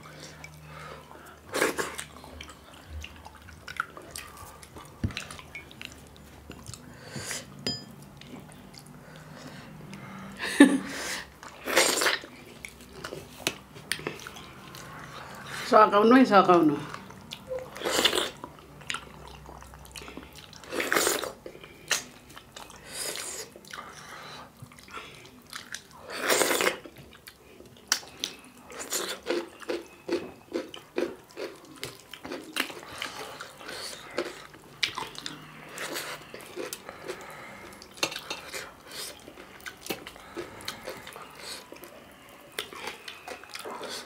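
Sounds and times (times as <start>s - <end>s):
wet chewing and lip-smacking: 0.0s - 6.9s, 11.3s - 15.5s, 16.8s - 44.0s.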